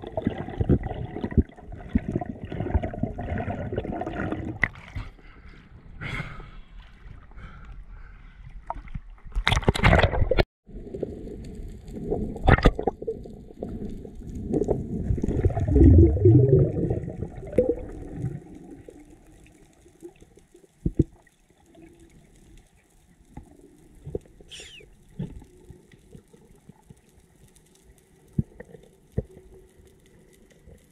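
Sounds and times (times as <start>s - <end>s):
water sloshing and splashing: 0.0s - 5.2s, 8.5s - 10.5s, 11.8s - 22.4s
underwater rushing and bubbling: 0.0s - 30.9s
faint underwater clicks: 17.0s - 30.9s.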